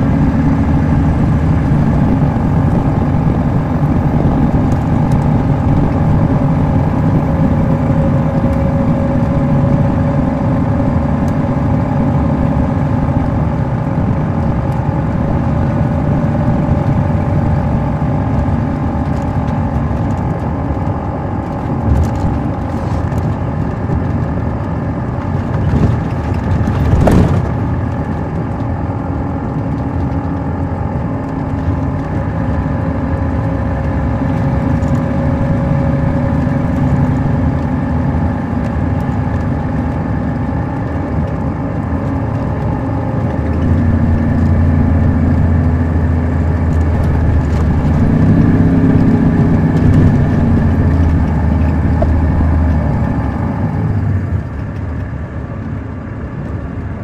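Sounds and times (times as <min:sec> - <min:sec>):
diesel coach engine running: 0:00.0 - 0:57.0.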